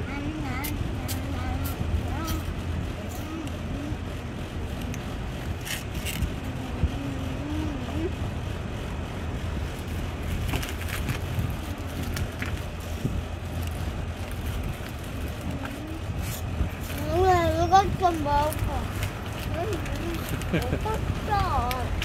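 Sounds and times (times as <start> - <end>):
distant traffic: 0.0 - 22.0
wind: 0.0 - 22.0.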